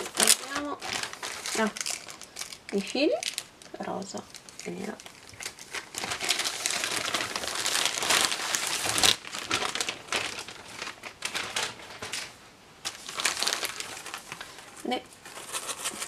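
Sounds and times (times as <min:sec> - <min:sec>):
plastic bags crinkling: 0:00.0 - 0:16.0.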